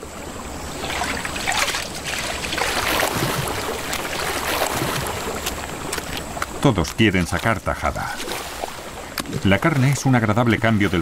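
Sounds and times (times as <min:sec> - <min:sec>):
water splashing and churning: 0:00.0 - 0:11.0.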